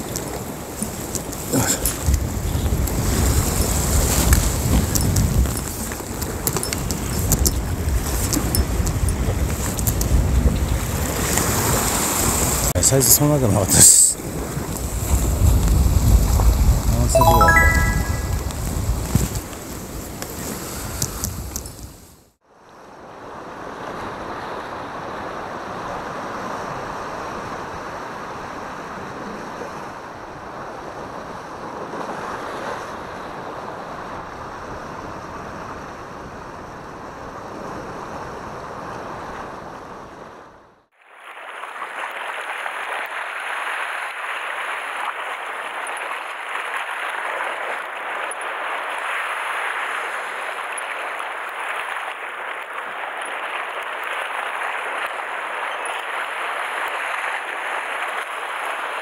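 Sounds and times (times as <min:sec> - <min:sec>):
wind on microphone: 0:00.0 - 0:12.7, 0:14.2 - 0:17.1, 0:18.1 - 0:22.0
sea surf on rocks: 0:00.0 - 0:21.5, 0:41.3 - 0:59.0.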